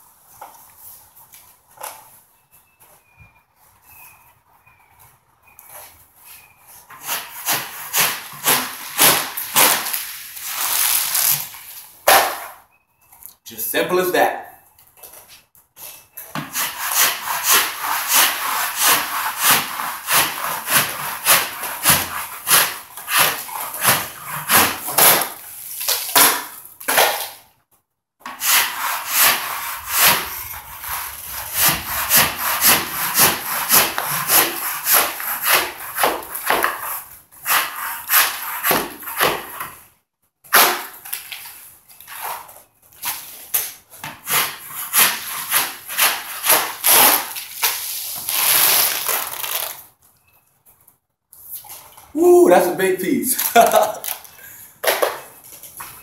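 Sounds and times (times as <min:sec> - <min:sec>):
drywall scraper rasping on ceiling: 0:06.9 - 0:11.5, 0:16.3 - 0:25.5, 0:28.2 - 0:39.8, 0:42.1 - 0:48.7.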